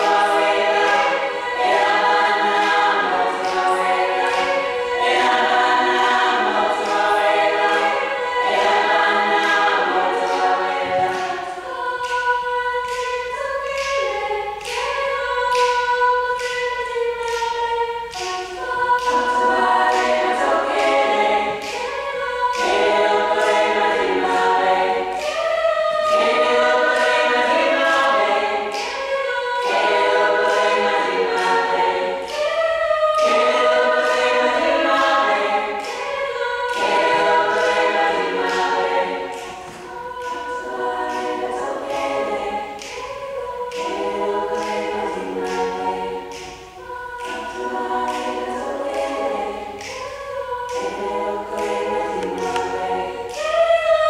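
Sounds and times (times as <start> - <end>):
sharp rhythmic clicks: 0.0 - 54.0
women singing in harmony: 0.0 - 54.0.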